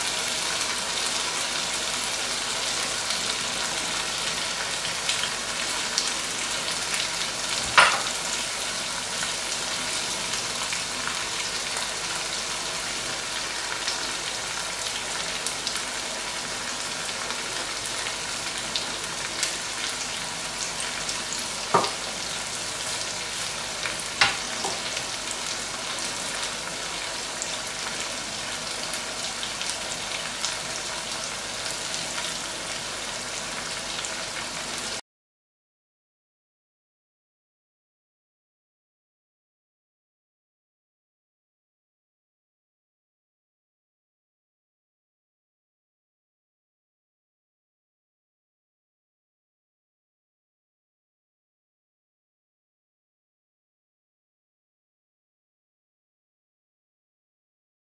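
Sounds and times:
food sizzling in oil: 0.0 - 35.0.

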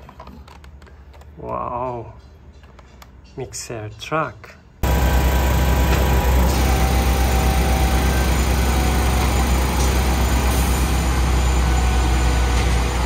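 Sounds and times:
diesel engine rumbling: 4.8 - 13.0.

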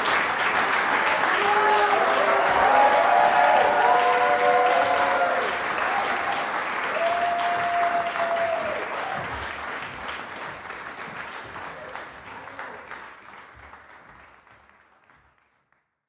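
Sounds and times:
audience applause: 0.0 - 15.7
long held cheer: 0.7 - 9.6.

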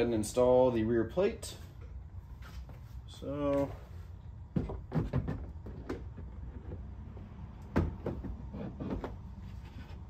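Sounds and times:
floor plate knocking: 4.5 - 6.3.

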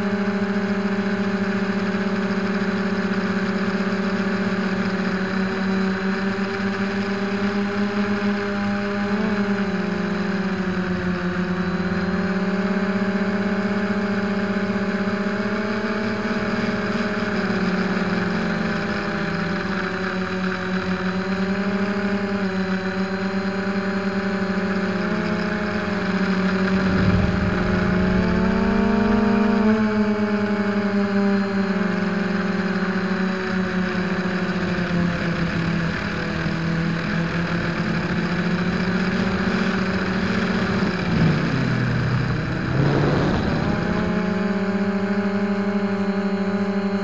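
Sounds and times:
drone motors whining: 26.5 - 30.4
low rumble: 26.6 - 31.0, 40.8 - 45.0.

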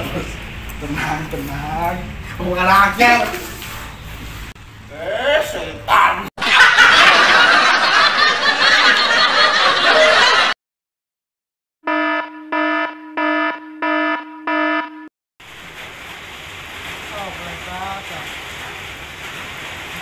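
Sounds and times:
electronic buzzer beeps: 11.9 - 15.1.

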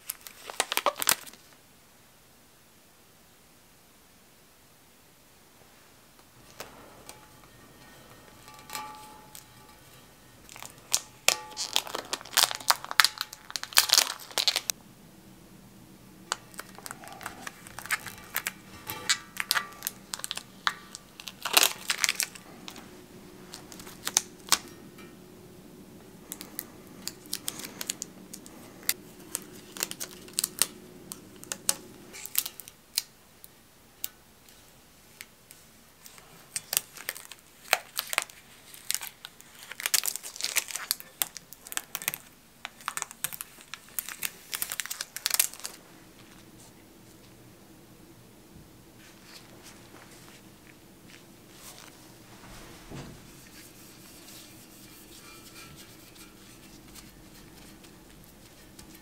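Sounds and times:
tape and paper crinkling: 0.0 - 1.6, 6.4 - 14.8, 16.3 - 25.1, 26.2 - 33.1, 36.0 - 46.7, 49.0 - 59.0.

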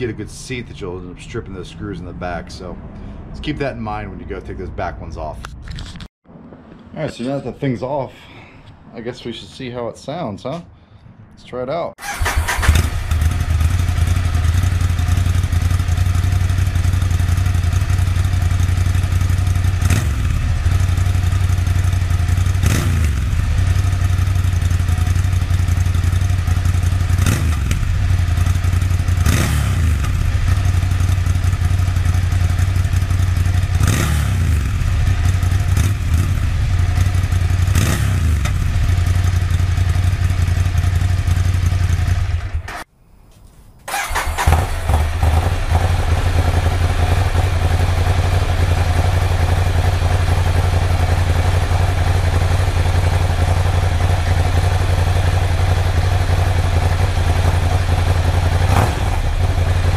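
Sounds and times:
motorcycle engine idling: 12.0 - 42.8, 43.9 - 59.9
motorcycle engine revving: 12.0 - 42.9, 43.9 - 59.9.

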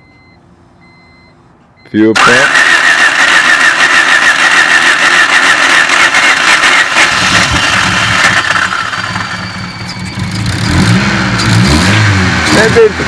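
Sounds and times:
starter motor cranking: 2.2 - 9.6
car engine running: 2.2 - 13.0.

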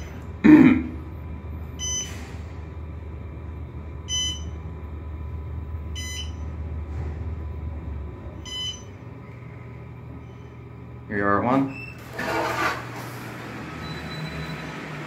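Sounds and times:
elevator chime beeps: 1.8 - 2.2, 4.1 - 4.6, 5.9 - 6.5, 8.4 - 9.0, 13.8 - 14.8.

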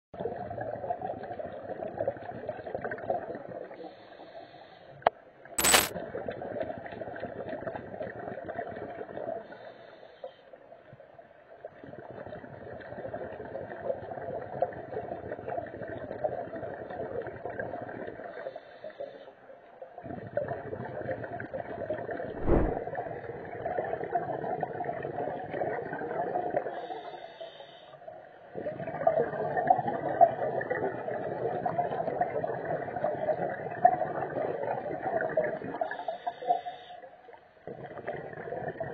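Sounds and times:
sharp click: 5.6 - 5.9.

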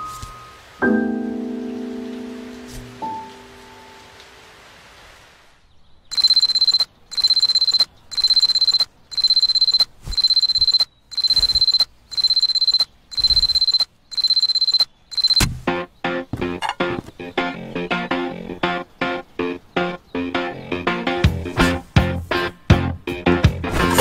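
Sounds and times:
alarm clock beeping: 6.1 - 15.5.

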